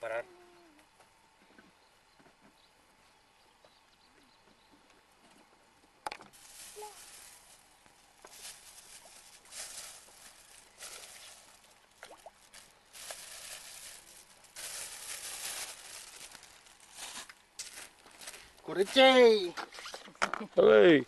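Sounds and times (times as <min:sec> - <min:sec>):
plastic bag rustling: 0:06.3 - 0:19.3.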